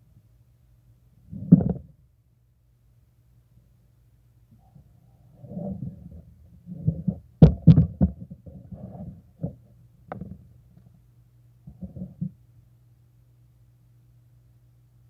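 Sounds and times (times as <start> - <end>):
sharp knocks: 7.4 - 8.2.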